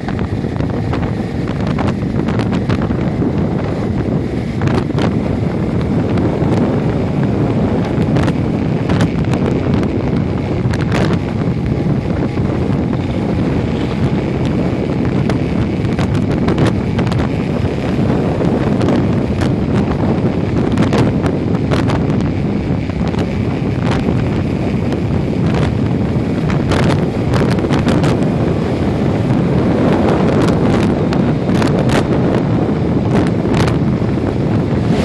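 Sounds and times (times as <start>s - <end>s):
engine and road rumble: 0.0s - 35.0s
wind buffeting microphone: 0.0s - 35.0s.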